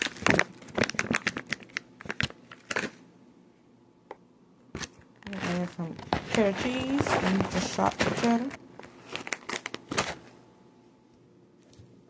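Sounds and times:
plastic packet crinkling: 0:00.0 - 0:03.0, 0:04.8 - 0:10.4.

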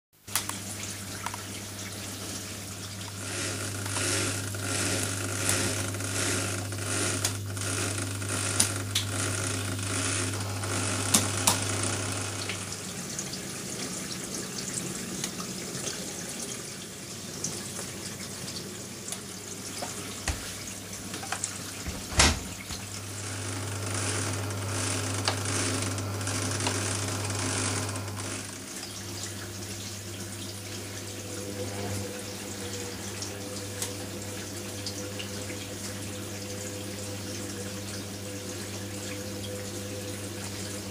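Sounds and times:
water hissing into washing machine: 0:00.2 - 0:40.9
washing machine clicks: 0:03.1 - 0:12.8, 0:19.8 - 0:28.9
steady low hum: 0:03.2 - 0:13.5.

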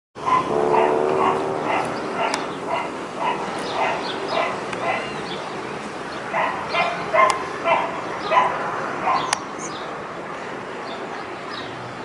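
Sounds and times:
dog barking: 0:00.2 - 0:05.2, 0:06.3 - 0:09.4.

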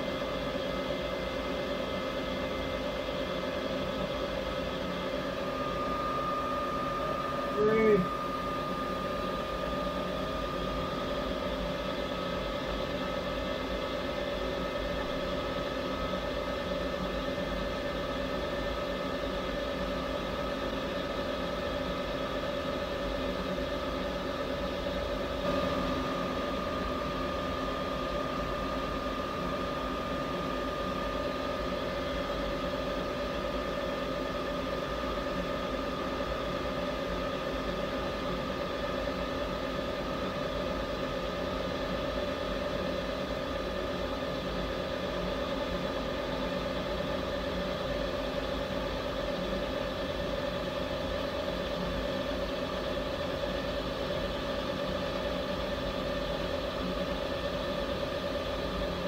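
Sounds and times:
milling machine humming and whining: 0:00.0 - 0:59.0.

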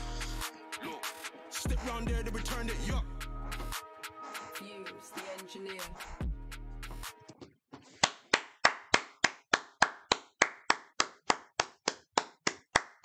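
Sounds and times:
person clapping: 0:07.9 - 0:13.0.

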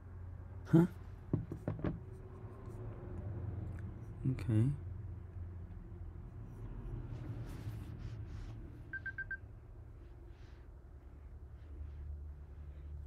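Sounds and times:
low steady hum: 0:00.0 - 0:13.0
short electronic beeps: 0:08.9 - 0:09.4.

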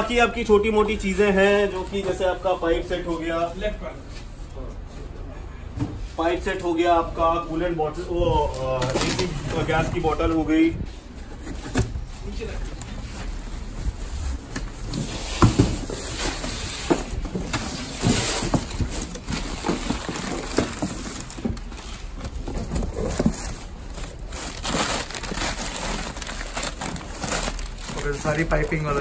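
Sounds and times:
newspaper rustling and crinkling: 0:08.4 - 0:29.0
cardboard parcel being slit: 0:22.8 - 0:28.4.

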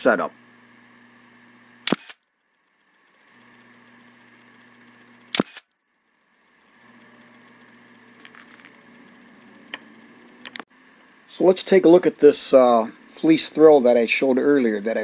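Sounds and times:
low electrical hum: 0:00.0 - 0:15.0
sharp double clicks: 0:01.8 - 0:02.2, 0:05.3 - 0:05.8.

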